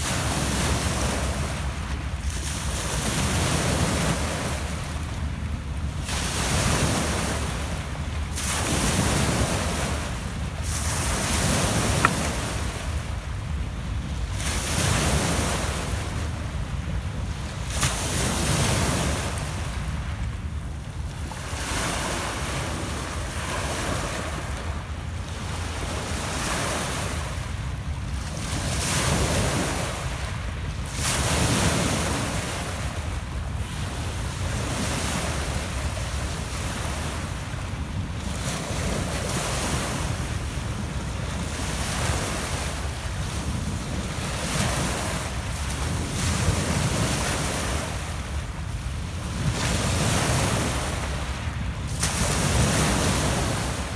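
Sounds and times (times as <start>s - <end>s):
waves washing over pebble beach: 0.0s - 20.1s, 33.7s - 53.9s.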